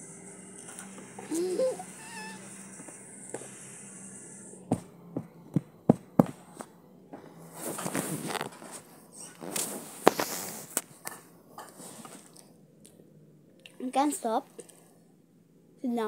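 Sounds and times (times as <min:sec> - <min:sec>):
small dog whining: 0:01.3 - 0:02.6.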